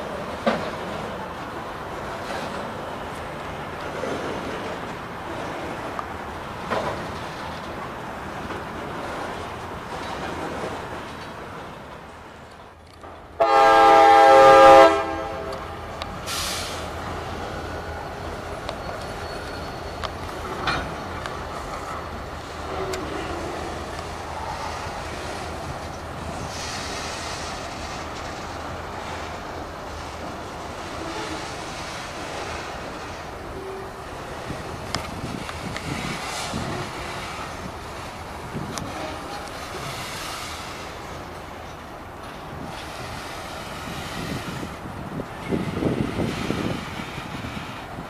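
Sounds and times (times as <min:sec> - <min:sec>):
freight cars rolling wheel noise: 0:00.0 - 0:48.0
locomotive air horn blast: 0:13.4 - 0:16.8, 0:30.8 - 0:32.0, 0:38.7 - 0:40.1.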